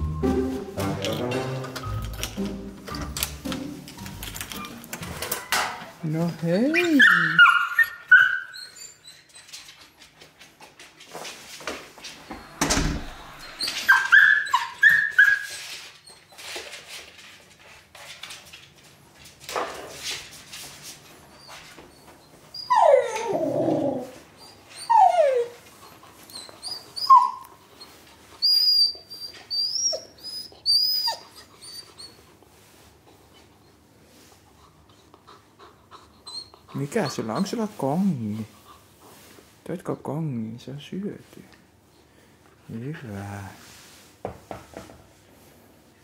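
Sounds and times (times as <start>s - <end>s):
puppy whimpering and whining: 6.6s - 9.9s, 12.2s - 16.6s, 21.4s - 32.4s, 35.0s - 37.6s
thump: 12.3s - 13.3s.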